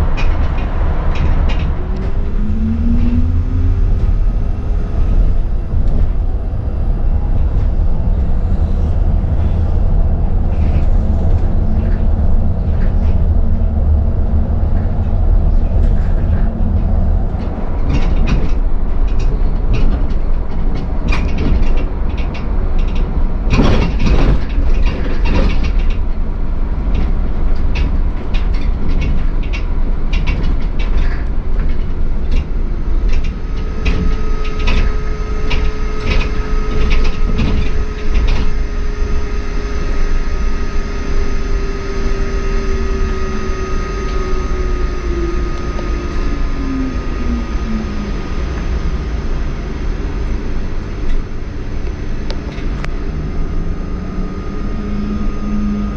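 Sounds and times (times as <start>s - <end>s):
bus road rumble: 0.0s - 55.9s
knocks and rattles: 9.0s - 26.2s, 26.8s - 39.1s
electric motor whine: 33.4s - 55.9s.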